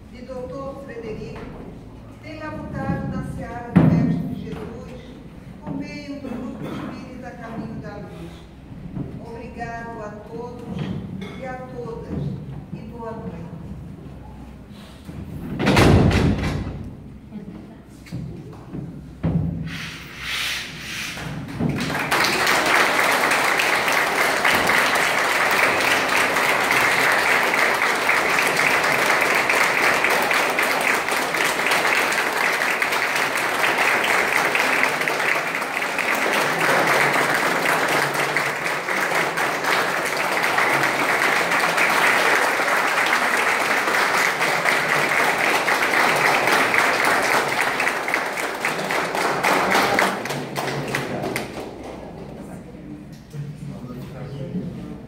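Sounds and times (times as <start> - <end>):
audience applauding: 21.4 - 52.0.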